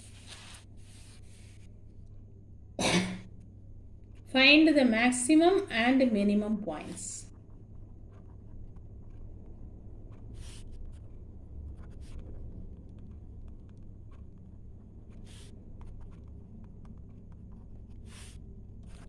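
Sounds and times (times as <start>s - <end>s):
low steady hum: 0.0s - 19.0s
pen scratching while writing: 7.3s - 19.0s.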